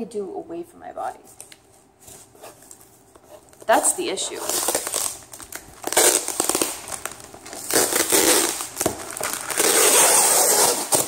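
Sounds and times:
knife ripping packing tape: 4.3 - 11.0.

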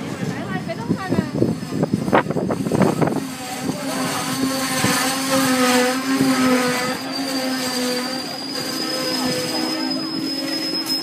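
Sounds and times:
train coaches rolling: 0.0 - 11.0
brake squeal: 2.9 - 11.0
high whistle-like tone: 5.5 - 11.0.

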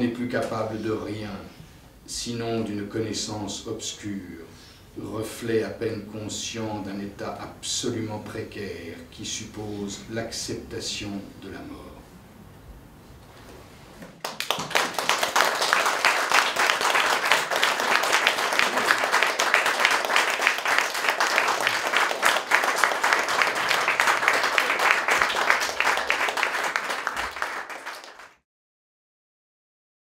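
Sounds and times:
audience applauding: 14.0 - 28.4.

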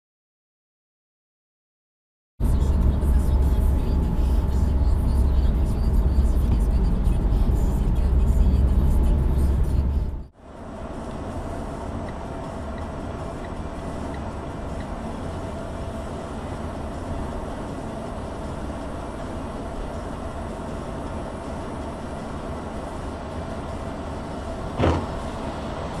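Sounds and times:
car engine drone: 2.4 - 26.0
tyres on wet road: 11.0 - 26.0.

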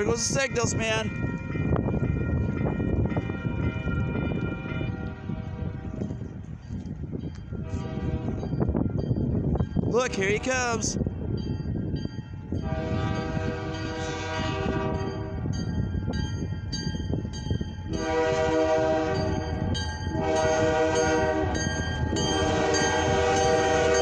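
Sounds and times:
train rumble: 0.0 - 24.0
locomotive air horn blasts: 4.6 - 6.0, 7.6 - 8.4, 12.6 - 15.4, 18.0 - 19.5, 20.2 - 21.6, 22.4 - 24.0
crossing signal bell dinging: 19.0 - 24.0.

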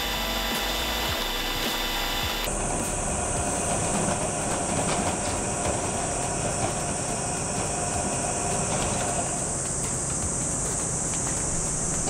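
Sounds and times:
pot mill rumbling: 0.0 - 12.0
rapid faint clicking: 3.6 - 12.0.

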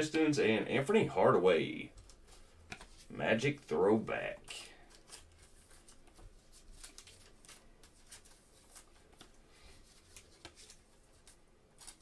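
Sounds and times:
trading cards clicking and rustling: 1.9 - 3.1, 4.4 - 12.0.

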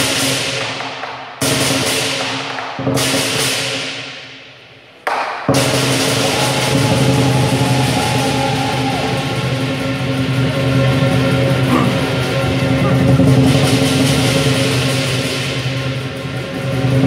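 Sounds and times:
drum gong and cymbals playing: 5.5 - 17.0.

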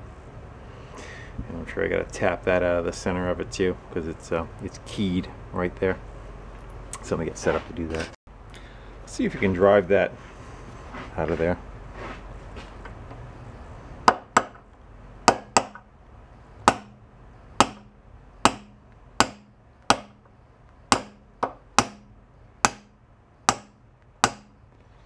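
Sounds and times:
hammer tapping metal punch: 14.0 - 15.9, 16.6 - 17.0, 17.6 - 24.6.

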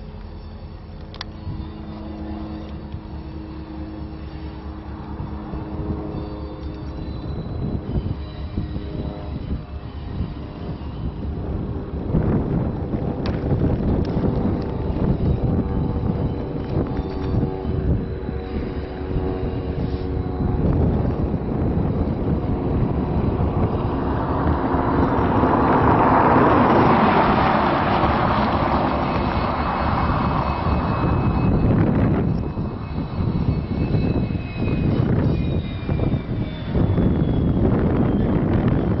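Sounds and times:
faint high squeals: 0.0 - 12.1, 14.0 - 39.0
diesel locomotive passing: 0.0 - 39.0.

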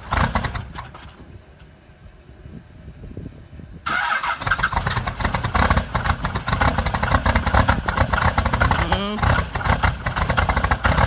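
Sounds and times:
diesel engine starting and clattering: 0.0 - 2.0, 3.7 - 11.0.

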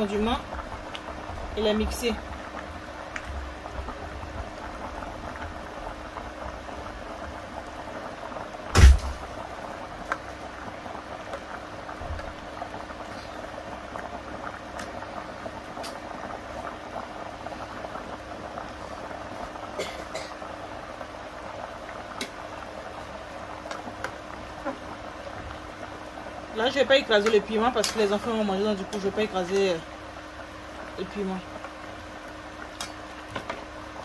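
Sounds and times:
soup bubbling in pot: 0.0 - 34.0
loud knock: 8.7 - 9.2.

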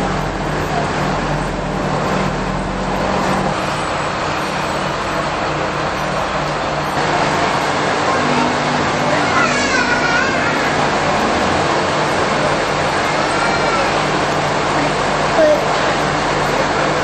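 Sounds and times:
diesel railcar engine idling: 0.0 - 17.0.

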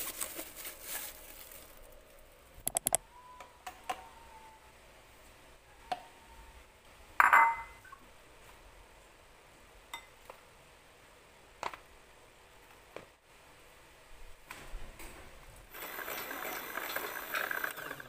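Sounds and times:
glass bowl clinking on tiles: 7.2 - 8.0, 9.9 - 10.1.

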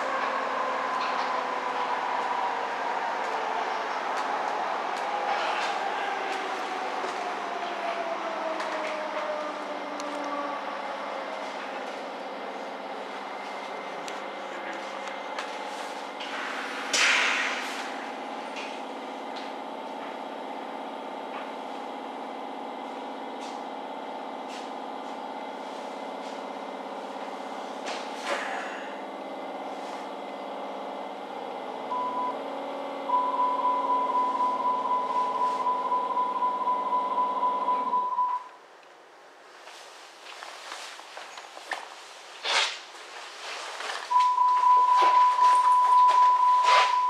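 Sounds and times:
pulsing door-closing warning tone: 31.9 - 38.5, 44.1 - 47.0
short beep: 33.1 - 38.5, 44.1 - 47.0.

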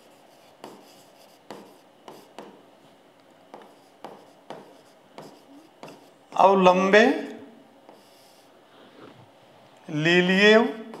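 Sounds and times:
pen tapping on screen: 1.5 - 2.6, 3.5 - 6.0.

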